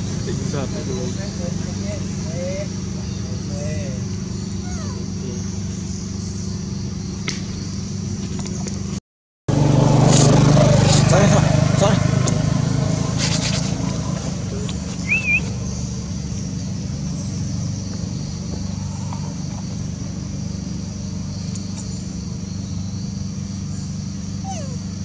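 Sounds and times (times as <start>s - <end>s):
motor engine running: 0.0s - 25.0s
short wavering chirp: 15.0s - 15.7s.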